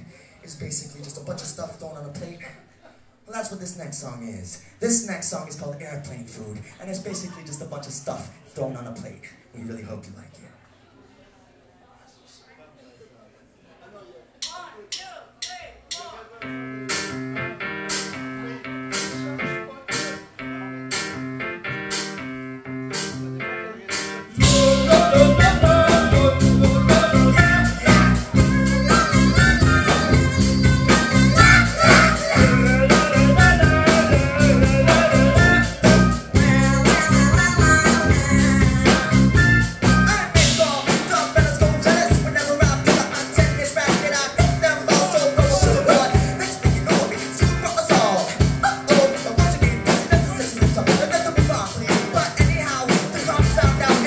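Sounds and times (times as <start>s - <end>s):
live rock band playing: 16.4s - 54.0s.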